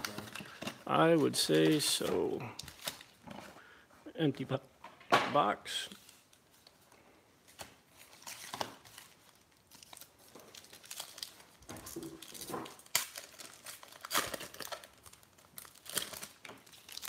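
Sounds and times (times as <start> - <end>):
foil wrappers crinkling: 0.0 - 3.2, 7.9 - 17.0.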